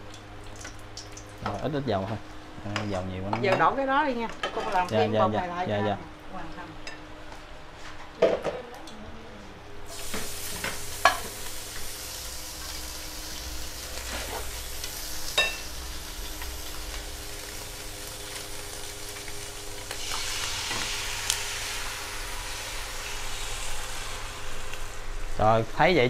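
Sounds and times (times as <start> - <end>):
hot oil sizzling in a wok: 9.9 - 26.0.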